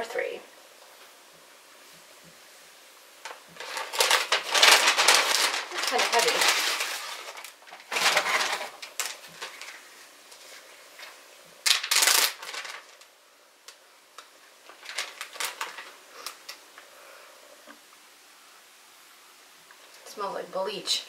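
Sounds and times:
plastic bag crinkling: 0:03.3 - 0:16.8.

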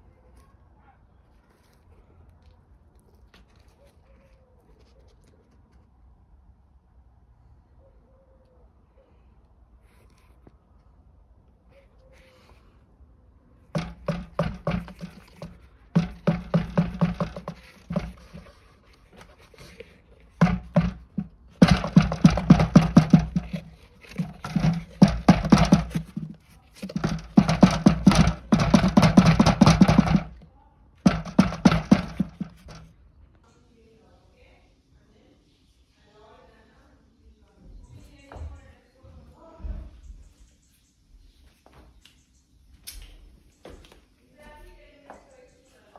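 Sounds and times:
filter knocking against bucket: 0:13.7 - 0:30.4, 0:31.0 - 0:32.9.

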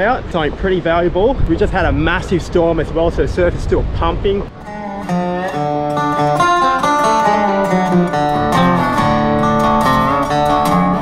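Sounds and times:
acoustic guitar music: 0:04.5 - 0:11.0.

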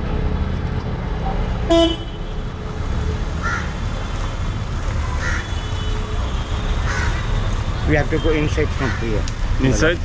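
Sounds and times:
street traffic rumble: 0:00.0 - 0:10.0
vehicle horn honk: 0:01.7 - 0:02.2
crow cawing: 0:03.4 - 0:03.8, 0:05.2 - 0:05.6, 0:06.8 - 0:07.3, 0:08.8 - 0:09.2.

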